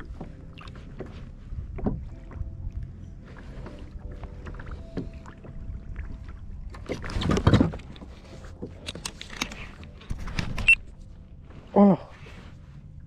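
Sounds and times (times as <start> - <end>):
wind rumble on microphone: 0.0 - 8.6
water sloshing against plastic hull: 0.0 - 11.0.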